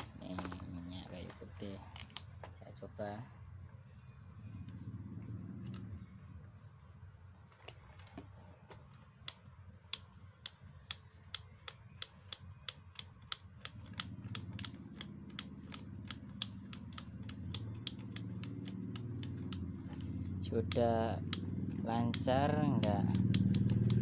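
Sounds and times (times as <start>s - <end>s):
plastic slide switch clicking: 22.0s - 24.0s.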